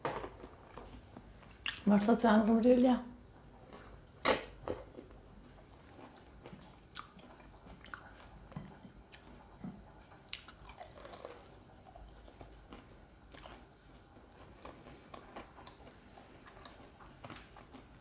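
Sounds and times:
soft chewing with lip clicks: 0.2s - 2.0s, 3.4s - 18.0s
wet mouth smack: 4.2s - 4.6s.

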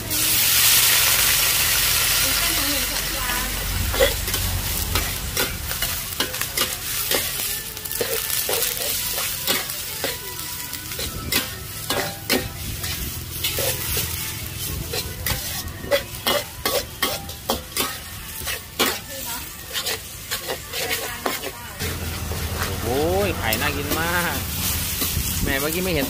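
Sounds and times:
sizzling: 0.0s - 26.0s
metal spatula scraping a wok: 1.7s - 26.0s.

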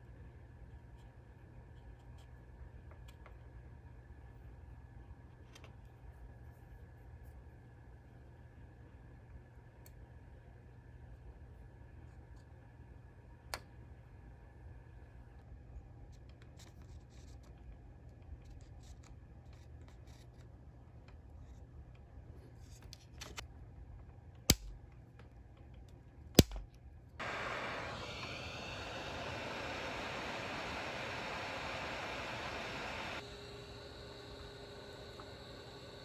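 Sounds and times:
soldering ticks and scraping: 24.5s - 24.8s
heat gun blowing hiss: 27.2s - 35.3s.

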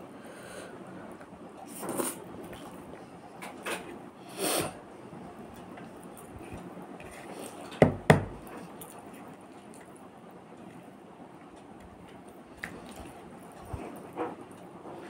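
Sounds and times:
chewing: 8.4s - 15.0s
fingers mixing rice on plate: 10.6s - 15.0s.

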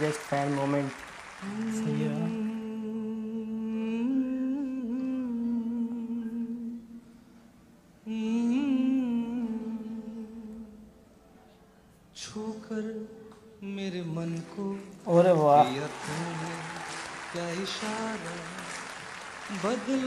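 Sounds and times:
man humming a melody: 1.4s - 7.0s.

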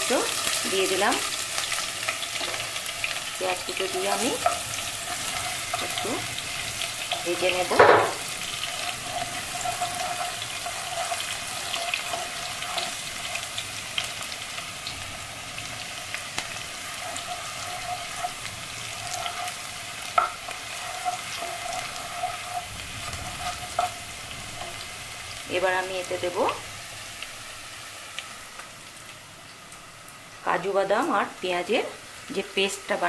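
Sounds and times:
onion sizzling in oil: 0.0s - 33.0s
wooden spatula tapping pan: 20.1s - 24.0s.

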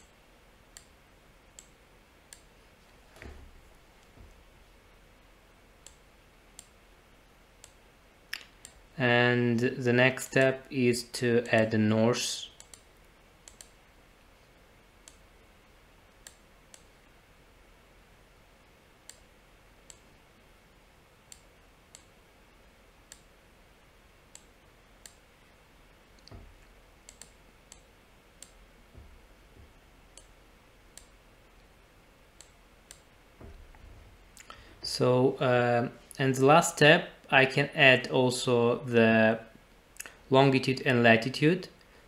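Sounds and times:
computer mouse clicks: 12.6s - 13.8s, 15.0s - 15.2s, 16.2s - 16.9s, 23.1s - 23.3s, 24.3s - 25.2s, 27.0s - 28.6s, 32.4s - 33.1s
soft low bumps: 28.7s - 30.1s, 33.3s - 35.0s.

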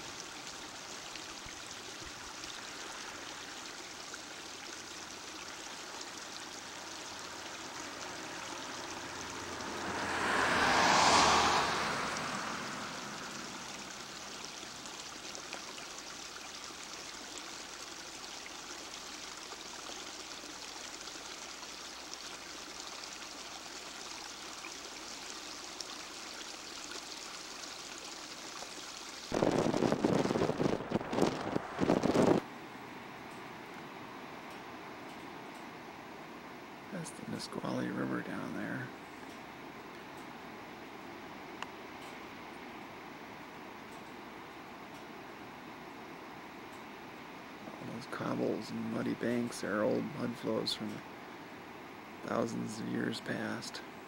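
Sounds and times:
car road and wind noise: 7.8s - 14.3s, 29.3s - 32.5s
steady rushing noise: 29.3s - 32.5s.

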